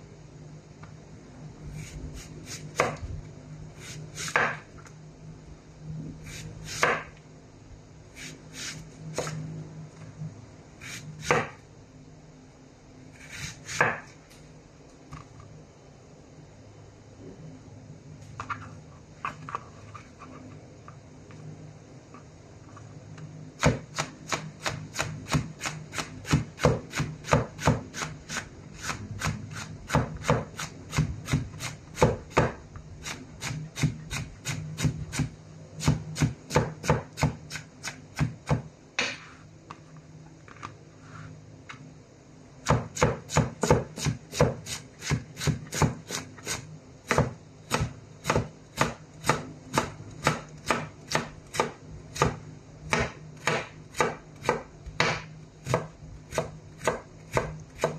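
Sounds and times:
knife chopping on cutting board: 2.5 - 3.0, 3.8 - 4.6, 6.3 - 7.1, 10.8 - 11.6, 13.2 - 14.1, 23.6 - 32.6, 33.4 - 39.3, 42.6 - 57.9.

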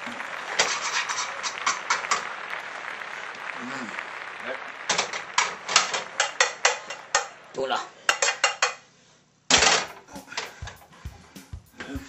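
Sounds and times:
pots and pans clattering: 0.5 - 2.2, 4.9 - 7.4, 8.0 - 8.8, 9.5 - 10.9.

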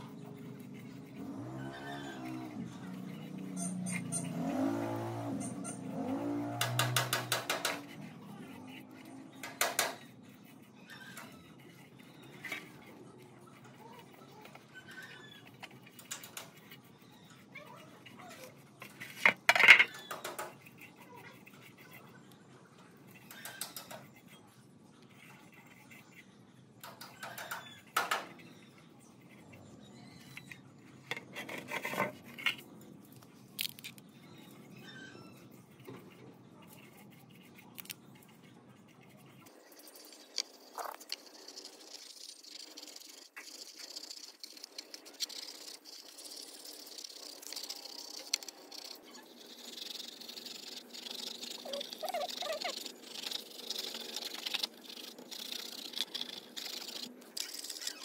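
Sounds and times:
brush tapping and scraping on metal: 0.0 - 21.9, 35.4 - 58.0.

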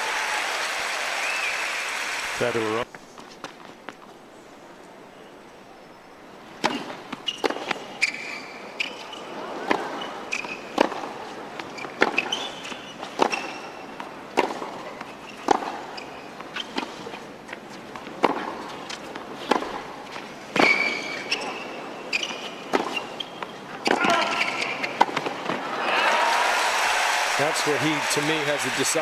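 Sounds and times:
tennis ball hit by racquets: 6.6 - 25.6
shoe squeaks on court: 6.7 - 9.2, 10.0 - 10.8, 11.6 - 13.8, 15.0 - 17.8, 20.6 - 25.0.

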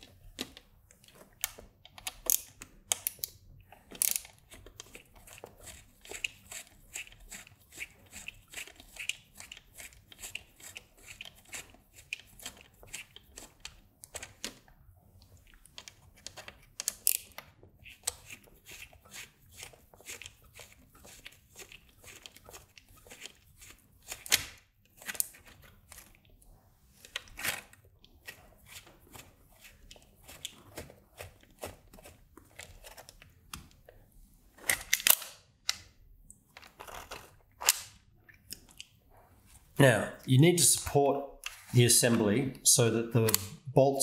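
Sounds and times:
screwdriver clicks and scrapes: 0.4 - 14.6, 15.6 - 26.2, 34.6 - 35.9, 36.6 - 38.9.

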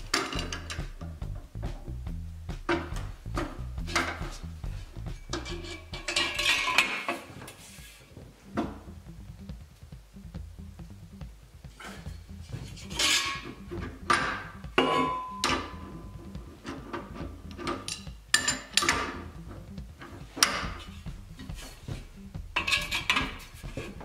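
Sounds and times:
wrench clanking on steel nut: 0.1 - 0.9, 5.1 - 7.1, 16.6 - 19.2, 22.6 - 23.4.

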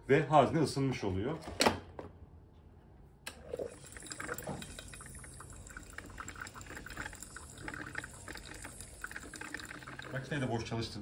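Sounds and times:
coffee maker bubbling and sputtering: 3.3 - 10.7.

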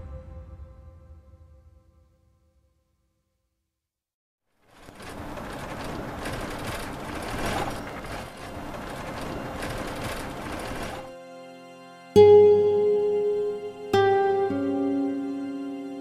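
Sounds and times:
soft music: 0.0 - 1.8, 8.1 - 16.0
rattling inside vehicle: 4.7 - 11.1
vehicle engine rumble: 4.7 - 11.1.

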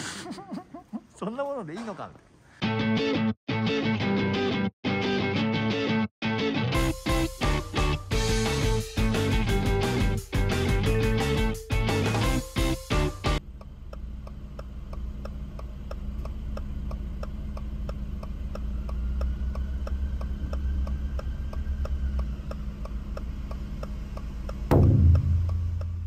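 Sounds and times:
turn signal ticking: 10.3 - 26.0
car engine idling: 13.1 - 26.0.

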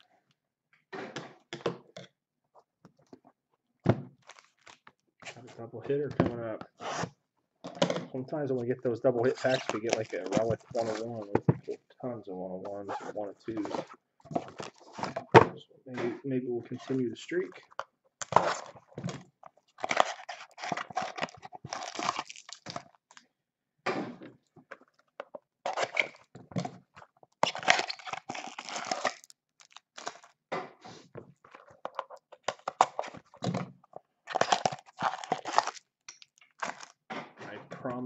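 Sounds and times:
wrapper tearing and crinkling: 4.2 - 4.9, 9.2 - 11.2, 18.2 - 18.9, 19.6 - 23.2, 25.7 - 26.3, 27.4 - 30.4, 34.2 - 37.0.

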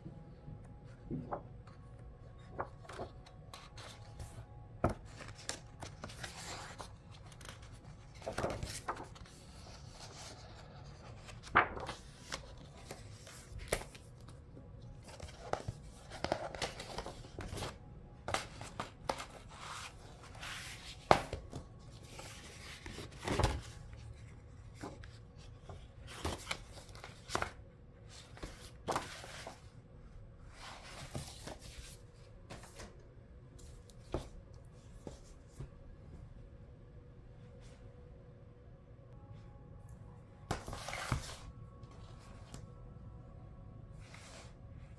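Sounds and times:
book pages turning: 0.9 - 29.7, 30.5 - 32.9, 40.5 - 42.6
paper rustling: 2.4 - 14.4, 15.0 - 27.6, 28.2 - 29.6, 30.6 - 32.9.

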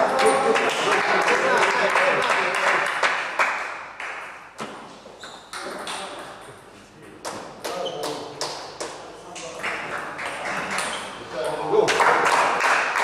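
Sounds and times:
crowd noise: 0.0 - 3.0
table tennis ball hits: 5.5 - 6.5.

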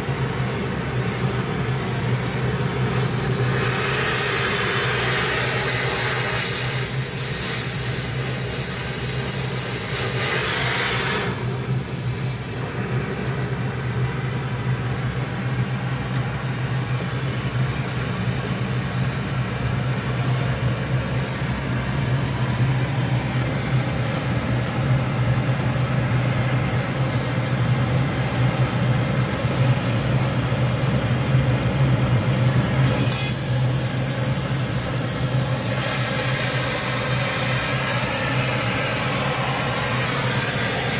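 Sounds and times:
steady low hum: 0.0 - 40.9
welding torch flame hissing: 2.8 - 12.6, 33.0 - 40.9.

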